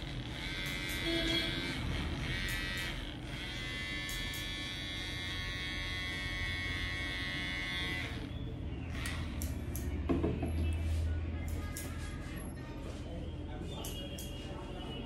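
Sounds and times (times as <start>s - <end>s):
electric hair clipper buzzing: 0.0s - 8.3s, 8.9s - 9.9s.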